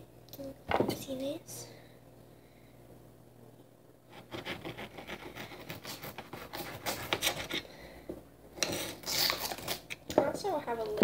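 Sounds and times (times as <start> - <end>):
scraping and rubbing: 4.1 - 7.6, 8.6 - 9.8.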